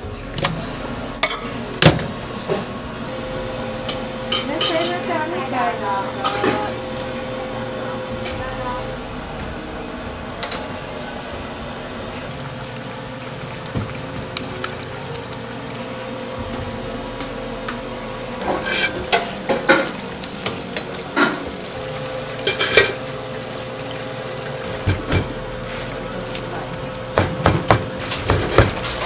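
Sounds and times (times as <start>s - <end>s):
metal tongs clattering on fryer: 3.9s - 5.3s, 6.2s - 6.8s, 18.4s - 23.6s, 27.2s - 29.0s
chicken deep-frying sizzle: 12.0s - 16.1s, 17.4s - 29.0s.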